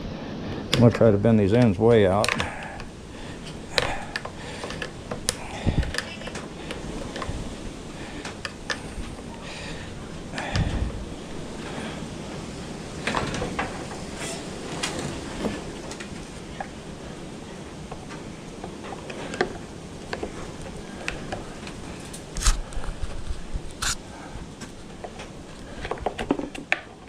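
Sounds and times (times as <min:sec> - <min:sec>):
radiator being handled: 0:00.8 - 0:09.4, 0:12.9 - 0:16.8.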